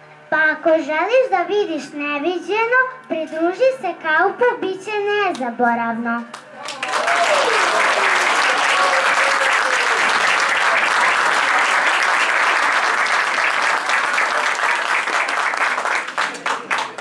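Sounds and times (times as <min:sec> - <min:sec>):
audience applauding: 0:06.6 - 0:17.0.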